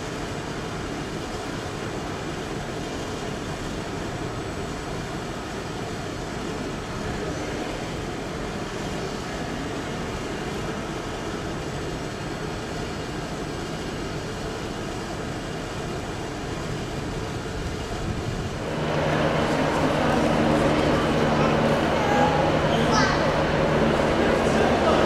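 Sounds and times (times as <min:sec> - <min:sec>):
train rumble: 0:14.9 - 0:25.0
diesel engine drone: 0:18.0 - 0:25.0.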